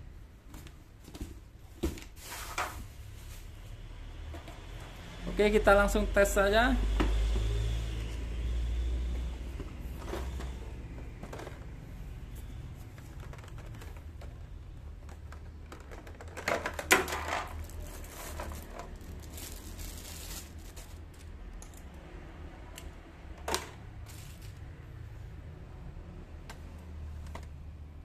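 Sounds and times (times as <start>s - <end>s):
packaging clicks and rustling: 10.0s - 21.9s.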